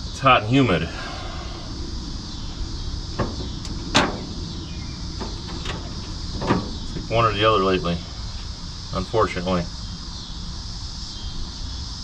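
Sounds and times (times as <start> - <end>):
high even hiss: 0.0 - 12.0
steady low hum: 0.0 - 12.0
sharp clicks and knocks: 3.2 - 4.4, 5.2 - 7.1.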